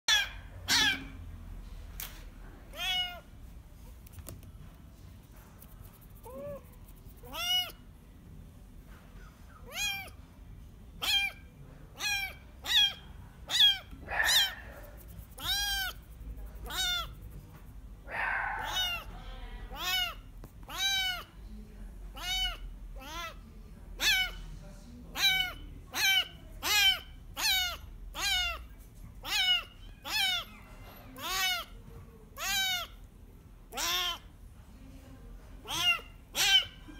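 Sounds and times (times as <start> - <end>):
kitten mewing: 0.1 - 1.2, 2.7 - 3.3, 6.2 - 7.8, 9.5 - 10.2, 11.0 - 17.3, 18.1 - 21.3, 22.1 - 23.4, 24.0 - 24.4, 25.1 - 30.6, 31.2 - 31.8, 32.4 - 33.0, 33.7 - 34.3, 35.6 - 36.9.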